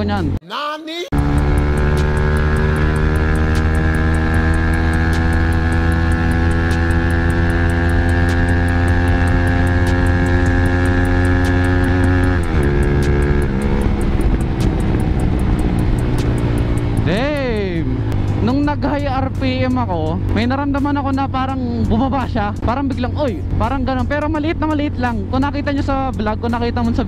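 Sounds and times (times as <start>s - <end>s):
motorcycle engine accelerating: 1.1s - 27.0s
wind rushing over microphone: 12.4s - 18.4s.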